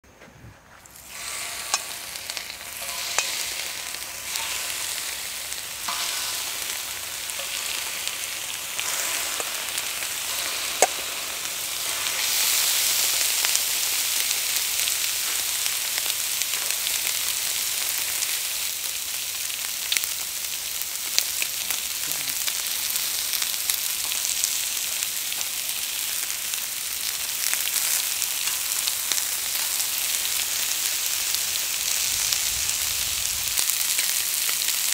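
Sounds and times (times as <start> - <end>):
chicken sizzling on griddle: 0.7 - 34.9.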